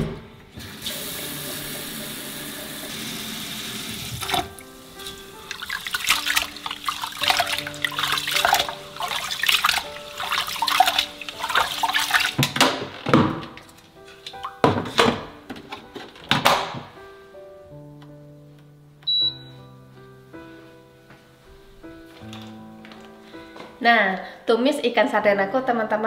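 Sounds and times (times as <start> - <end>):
kitchen tap running: 0.6 - 13.8
water swishing while washing rice: 4.2 - 12.6.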